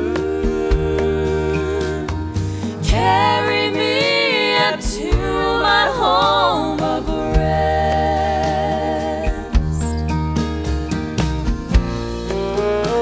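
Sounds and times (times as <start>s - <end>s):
slow song with singing: 0.0s - 10.0s
bass line: 0.0s - 13.0s.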